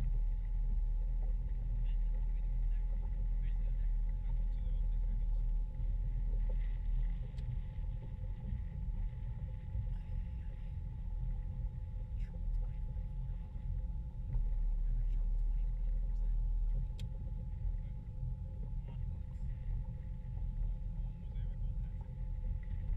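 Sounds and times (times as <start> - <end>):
faint hum tones: 0.0 - 22.9
motorboat engine rumbling: 0.0 - 22.9.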